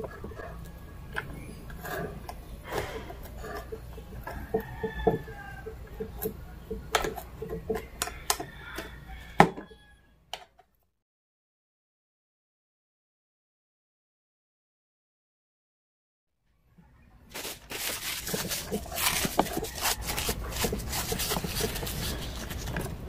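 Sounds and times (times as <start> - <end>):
metal spoon scraping waffle maker: 0.0 - 9.0, 17.3 - 23.0.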